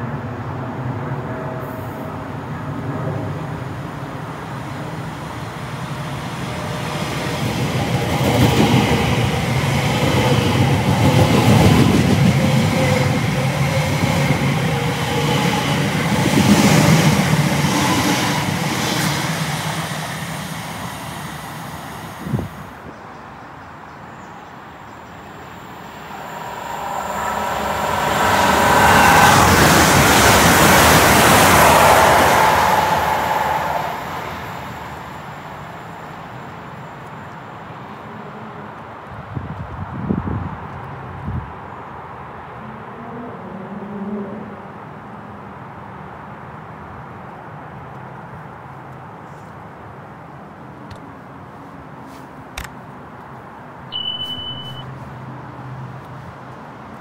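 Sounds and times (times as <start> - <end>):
electric train rumbling: 0.0 - 22.8, 24.4 - 37.0, 53.9 - 54.9
train approaching: 0.0 - 22.8, 24.1 - 38.4, 53.9 - 57.0.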